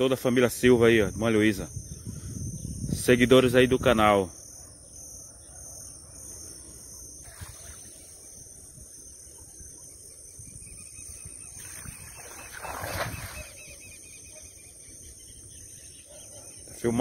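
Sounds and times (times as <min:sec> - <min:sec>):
insects chirring: 0:00.0 - 0:17.0
net splashing into water: 0:11.6 - 0:13.6.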